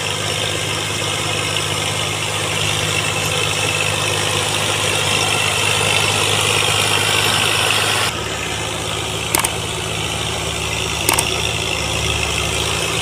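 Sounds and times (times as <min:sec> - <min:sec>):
tractor diesel engines running: 0:00.0 - 0:13.0
sharp clicks: 0:09.3 - 0:09.6, 0:11.0 - 0:11.4.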